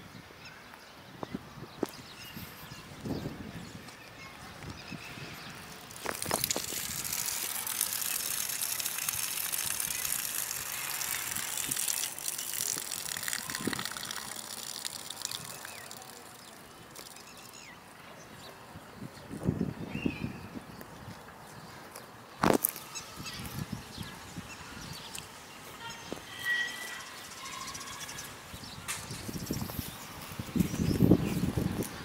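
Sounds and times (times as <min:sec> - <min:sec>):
crackling hiss: 0:05.7 - 0:17.7.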